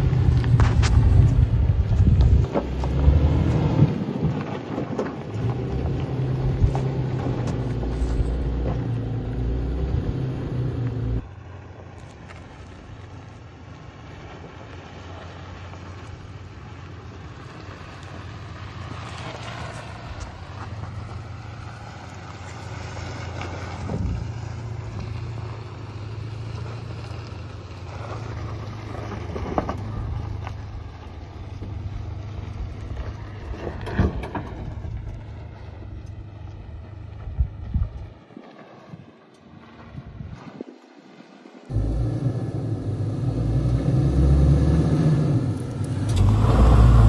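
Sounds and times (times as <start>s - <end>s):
truck engine driving past: 5.3s - 13.2s, 41.7s - 47.0s.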